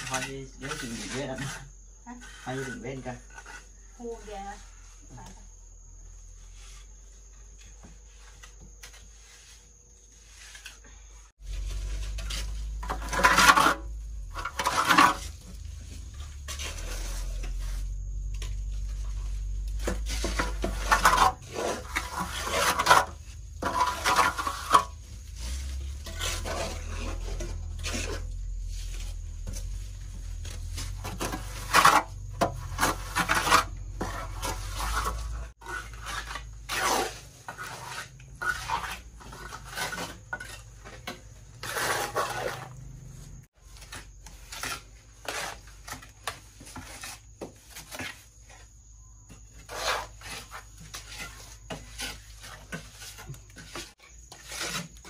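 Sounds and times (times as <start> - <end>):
scraping against a pot: 0.0 - 55.0
low steady rumble: 13.8 - 19.9.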